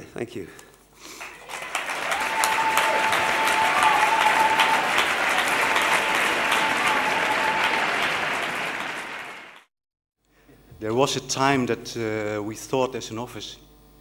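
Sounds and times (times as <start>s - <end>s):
audience applauding: 1.2s - 9.7s.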